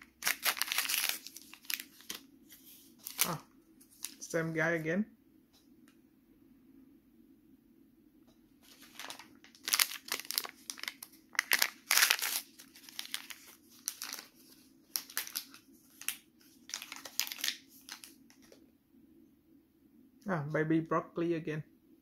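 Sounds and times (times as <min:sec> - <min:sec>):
plastic wrapper crinkling: 0:00.0 - 0:04.4, 0:08.6 - 0:18.6.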